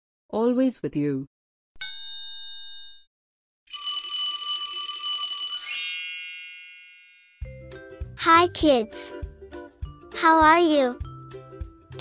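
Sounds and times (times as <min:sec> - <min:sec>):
bright bell-like chime: 0:05.4 - 0:07.6.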